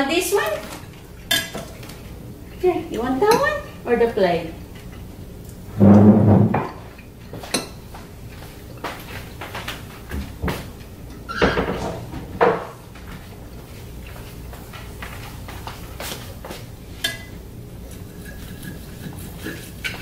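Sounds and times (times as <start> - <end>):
cutlery clinking on plates: 1.3 - 1.8, 17.0 - 17.4.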